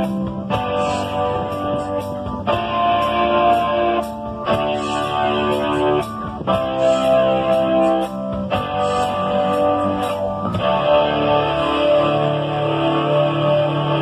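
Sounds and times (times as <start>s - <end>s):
drums with cymbal hits: 0.0s - 12.8s
electric guitar chords: 0.0s - 14.0s.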